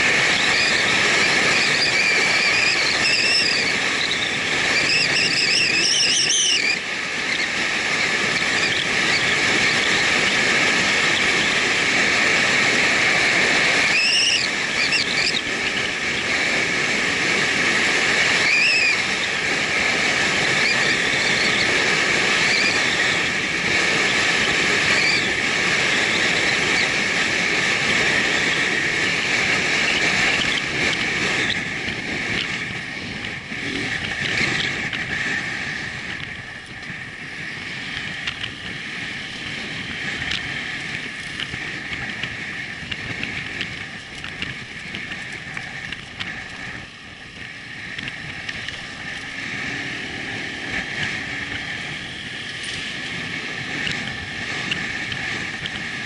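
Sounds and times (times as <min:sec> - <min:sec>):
motorcycle engine running: 0:00.0 - 0:56.0
wind noise: 0:00.0 - 0:56.0
high warbling whistles: 0:00.3 - 0:07.6, 0:13.7 - 0:16.0, 0:18.2 - 0:19.4, 0:20.5 - 0:23.2.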